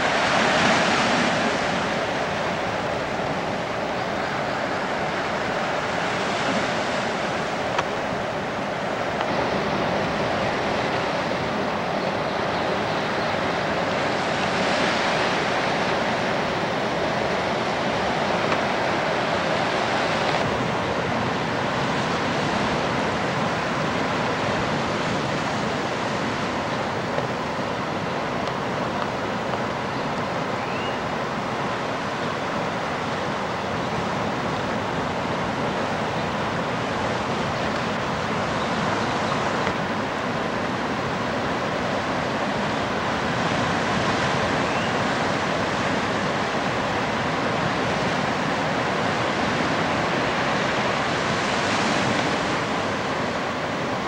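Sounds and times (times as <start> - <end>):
ocean waves breaking: 0.0 - 54.0.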